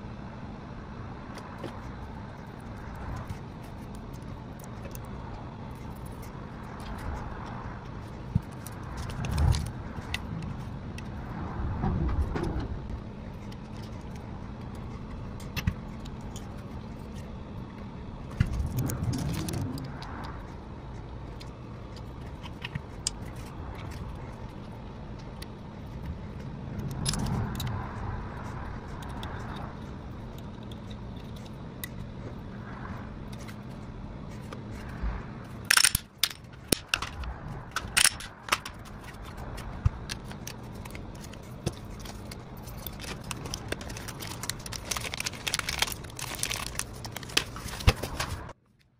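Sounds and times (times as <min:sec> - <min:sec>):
low steady hum: 0:00.0 - 0:48.9
small metal parts clinking: 0:26.8 - 0:27.7, 0:35.6 - 0:39.4, 0:40.1 - 0:48.3
plastic bag rustling: 0:40.2 - 0:48.5.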